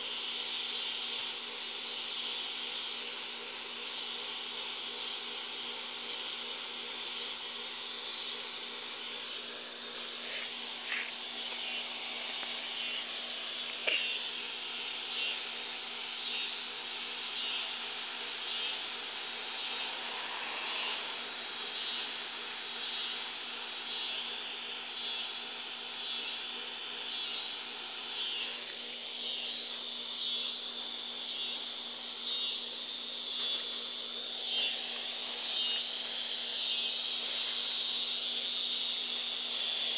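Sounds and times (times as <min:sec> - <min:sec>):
high hiss of insects: 0:00.0 - 0:39.9
repeating chirping pulse: 0:16.2 - 0:24.4.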